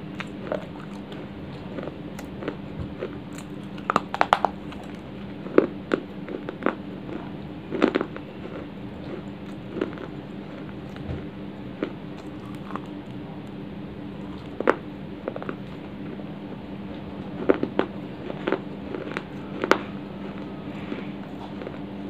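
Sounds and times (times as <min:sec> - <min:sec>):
chewing crunchy clay: 0:00.0 - 0:16.3, 0:16.9 - 0:22.0
steady low hum: 0:00.0 - 0:22.0.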